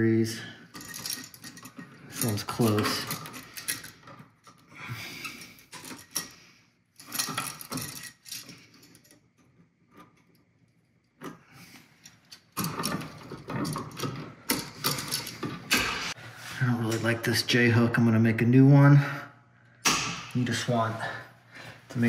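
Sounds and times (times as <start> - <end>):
metal clicks and rattles: 0.7 - 4.7, 5.3 - 6.4, 7.0 - 11.4, 12.0 - 16.1.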